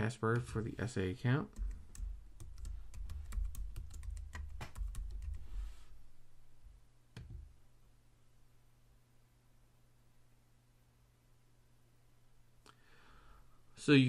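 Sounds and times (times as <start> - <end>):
computer keyboard typing: 1.5 - 5.4.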